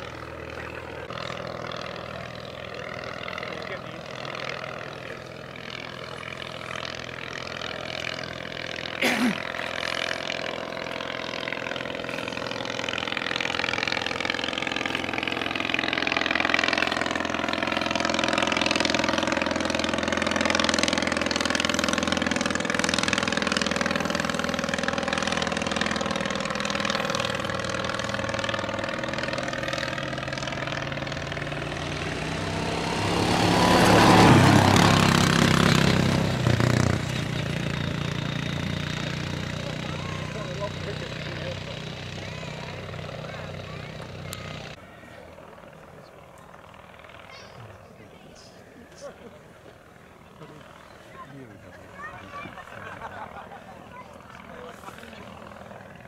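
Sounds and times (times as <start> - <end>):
small aircraft engine running: 0.0 - 56.0.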